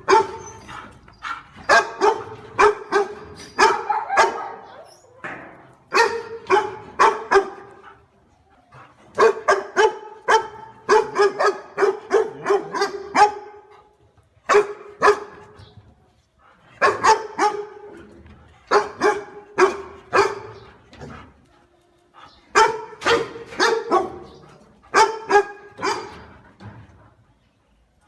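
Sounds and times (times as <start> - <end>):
dog barking: 0.0 - 0.4, 1.7 - 4.7, 5.9 - 7.8, 9.2 - 13.7, 14.5 - 15.4, 16.8 - 17.9, 18.7 - 20.6, 22.6 - 26.2.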